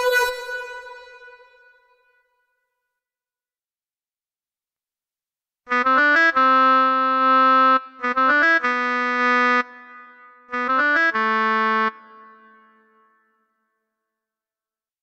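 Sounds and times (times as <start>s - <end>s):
synthesized oboe notes: 0.0s - 2.0s, 5.7s - 13.0s.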